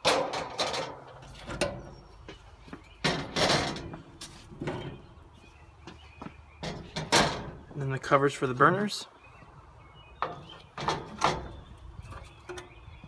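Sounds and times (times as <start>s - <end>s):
metal grate clanking: 0.0s - 2.0s, 3.0s - 5.1s, 6.6s - 7.7s, 10.2s - 11.7s
metal scraping and sliding: 0.0s - 2.0s, 3.0s - 5.1s.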